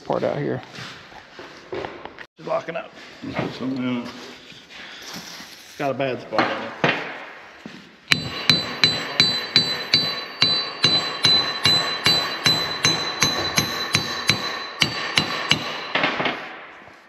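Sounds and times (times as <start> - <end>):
hammer striking steel: 8.1 - 17.0.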